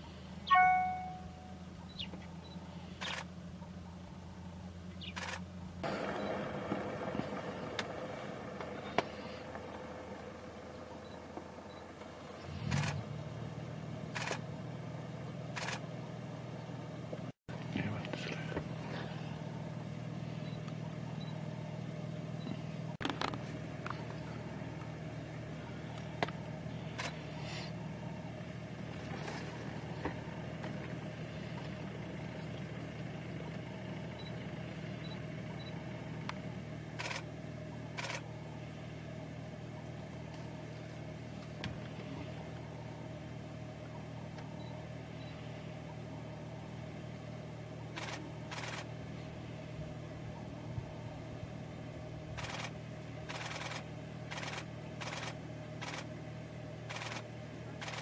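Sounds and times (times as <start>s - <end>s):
vehicle engine idling: 0.0s - 58.0s
camera shutters clicking: 53.3s - 56.1s.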